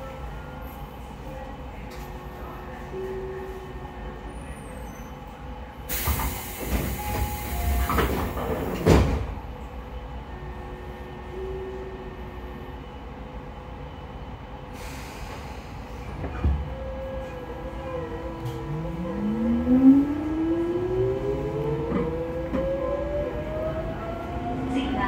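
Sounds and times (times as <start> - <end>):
train car interior hum: 0.0 - 25.0.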